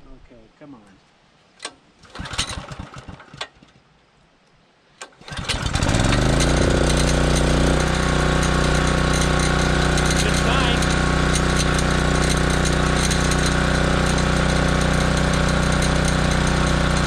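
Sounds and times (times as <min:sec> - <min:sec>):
generator pull start: 0:01.6 - 0:03.8, 0:05.0 - 0:17.0
generator engine running: 0:05.2 - 0:17.0.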